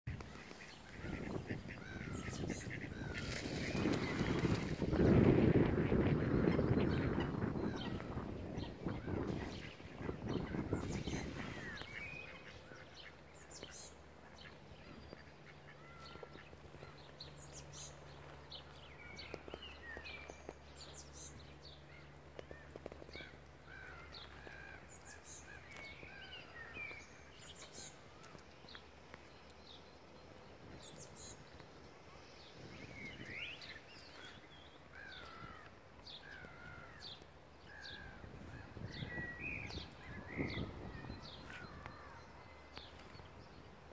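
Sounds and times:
birds chirping and whistling: 38.6 - 41.9.

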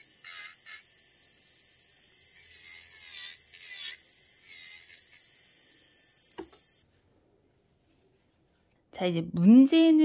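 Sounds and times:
electric nail drill whining: 0.0 - 6.8.

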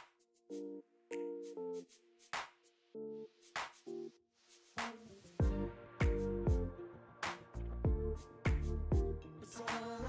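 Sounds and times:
electronic music: 4.8 - 10.0
deep kick drums: 5.4 - 6.7, 7.9 - 9.1
low bass: 5.4 - 6.8, 7.6 - 9.2.

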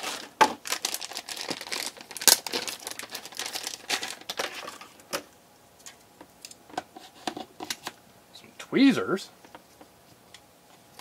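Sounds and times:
packaging crinkling: 0.0 - 5.2.

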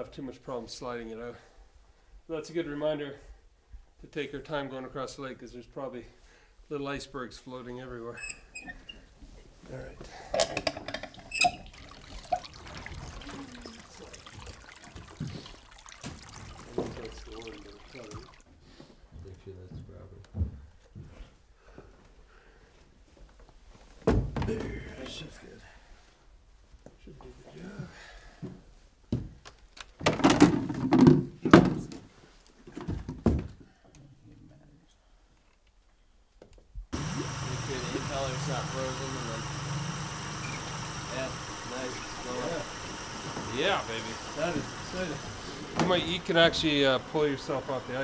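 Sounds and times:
water sloshing and trickling: 10.6 - 18.8.

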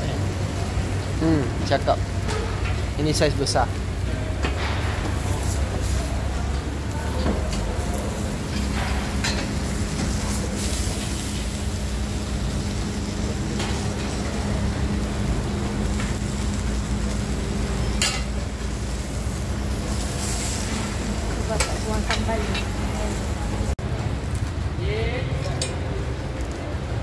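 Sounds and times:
fish sizzling on griddle: 0.0 - 27.0
metal tongs clinking on griddle: 7.2 - 11.6, 13.5 - 14.4, 17.8 - 18.4, 19.9 - 23.2.

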